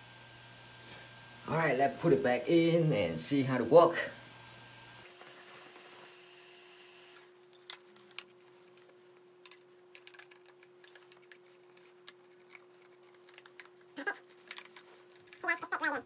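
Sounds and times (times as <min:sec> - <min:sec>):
plastic rattle: 0:07.5 - 0:16.0.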